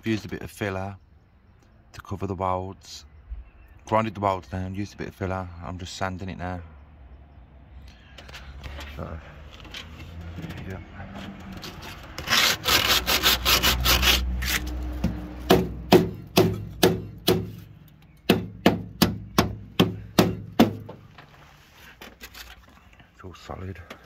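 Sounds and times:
sanding block rubbing on filler: 12.2 - 14.6.

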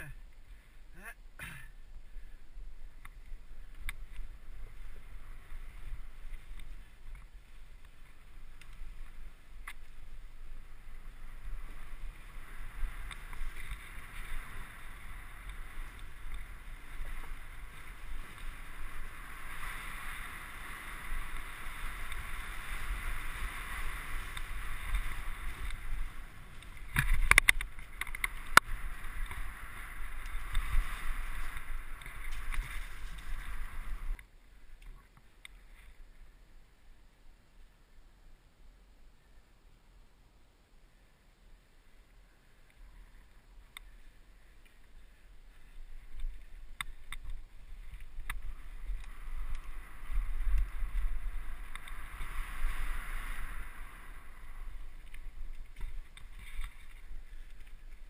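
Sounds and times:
wind and tyre noise: 0.0 - 58.0
bike rattling: 1.9 - 34.2, 43.9 - 58.0
bike knocking on bumps: 21.0 - 34.2.

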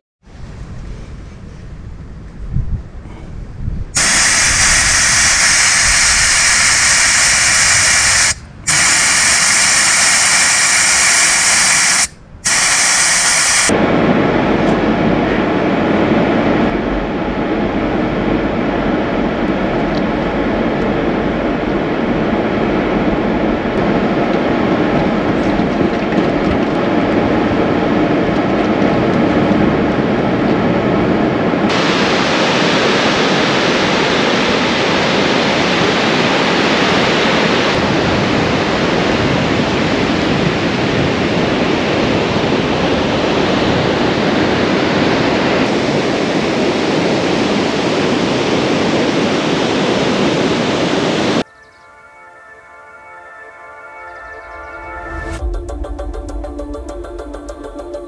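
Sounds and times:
air hissing from tyre valve: 4.0 - 13.7.

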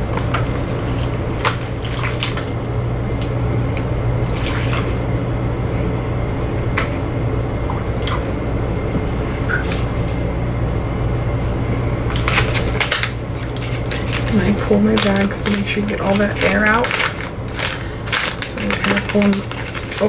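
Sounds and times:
steady low hum: 0.0 - 20.0
milk pouring into plastic bag: 12.1 - 20.0.

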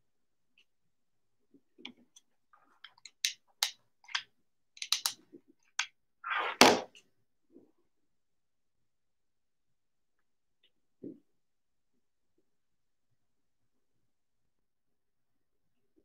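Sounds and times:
plastic bottle caps clicking: 4.8 - 5.2.

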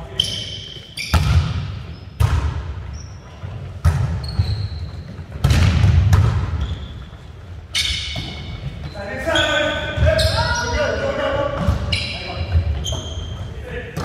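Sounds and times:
sneaker squeaks on hardwood: 0.1 - 2.2, 2.8 - 5.4, 6.4 - 10.8, 11.6 - 13.6
volleyball smacks echoing in gym: 1.0 - 6.9.

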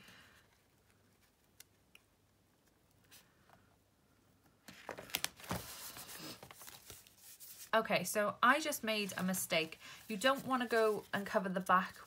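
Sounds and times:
paper rustling: 4.6 - 7.8, 8.6 - 12.0.

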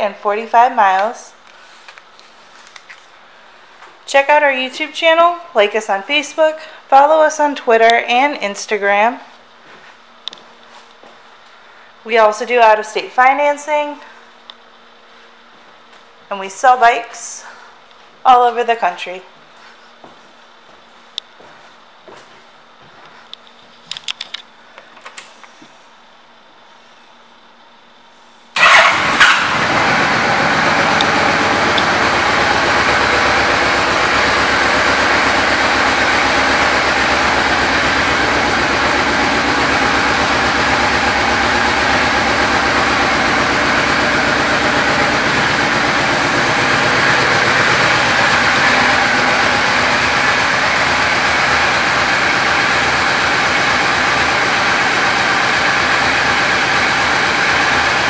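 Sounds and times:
motorcycle engine idling: 28.6 - 58.0.

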